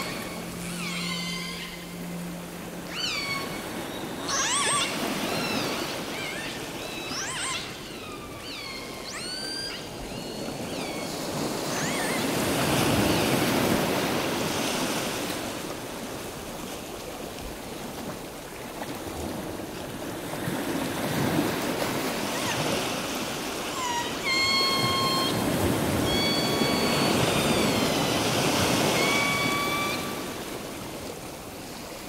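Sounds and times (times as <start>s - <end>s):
steady high tone: 0.0s - 5.8s
sea waves breaking on beach: 0.0s - 7.8s, 9.9s - 32.0s
gulls calling: 0.0s - 14.5s, 21.2s - 31.2s.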